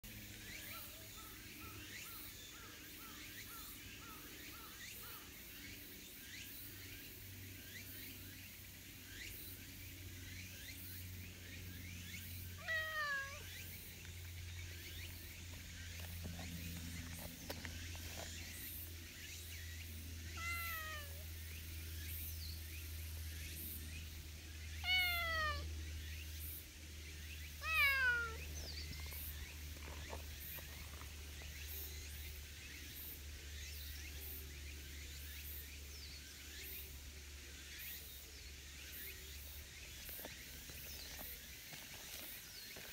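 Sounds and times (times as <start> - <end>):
cat meowing: 12.6 - 13.5, 20.4 - 21.2, 24.8 - 25.7, 27.6 - 28.4.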